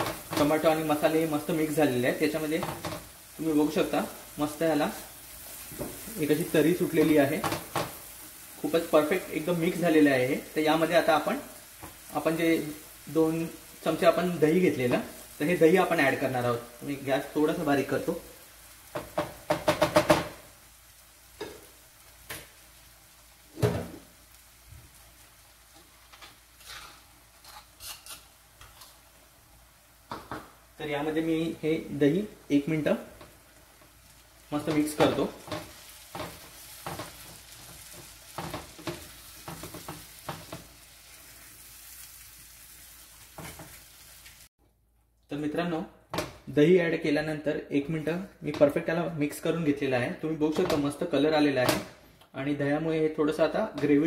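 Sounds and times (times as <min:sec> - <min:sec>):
sauce sizzling in frying pan: 0:00.0 - 0:44.5
spatula scraping pan: 0:26.1 - 0:29.0.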